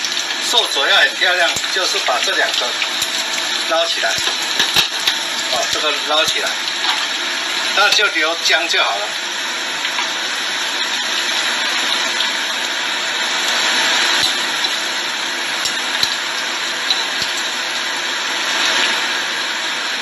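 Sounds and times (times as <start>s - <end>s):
ginger sizzling in a frying pan: 0.0s - 20.0s.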